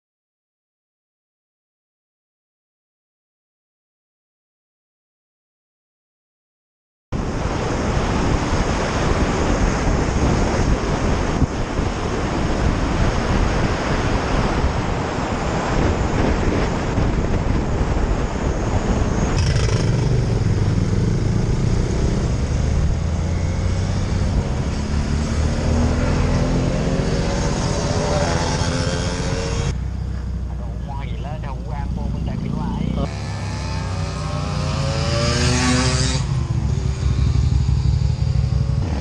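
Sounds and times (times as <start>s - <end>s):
wind rushing over microphone: 7.2s - 39.0s
motorcycle engine rising in pitch: 15.5s - 39.0s.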